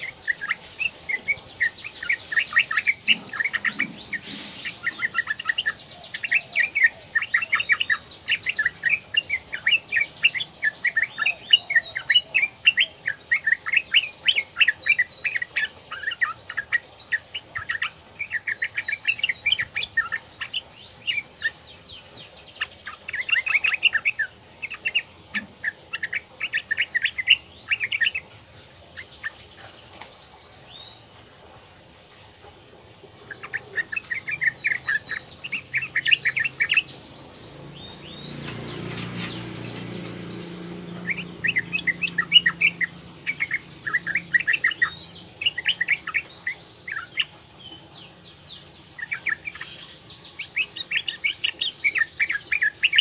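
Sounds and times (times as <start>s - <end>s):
bird chattering calls: 0.0s - 21.6s, 33.3s - 47.4s, 49.0s - 53.0s.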